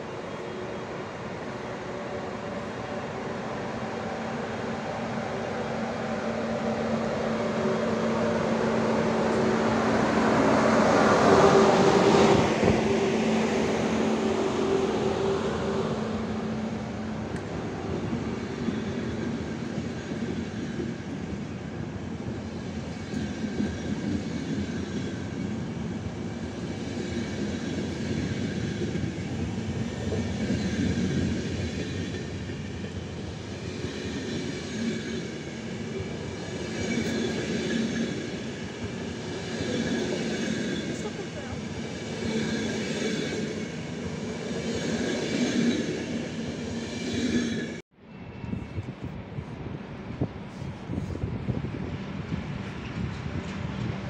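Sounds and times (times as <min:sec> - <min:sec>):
electric locomotive hum: 0:00.0 - 0:54.0
train wheels rolling on rails: 0:04.0 - 0:47.8, 0:48.4 - 0:54.0.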